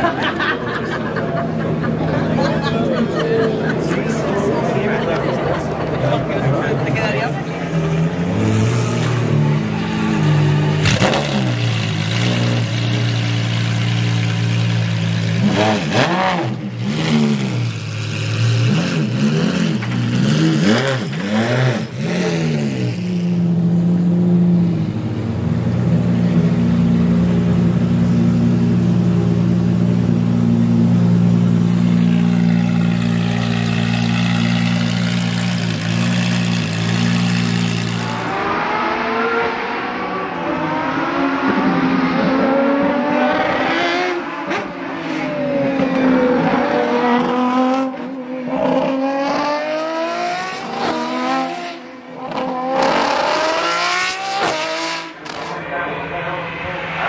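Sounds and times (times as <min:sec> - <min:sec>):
car engine running steadily: 0:10.8 - 0:20.3, 0:22.8 - 0:38.4
race car passing at full throttle: 0:31.9 - 0:57.0.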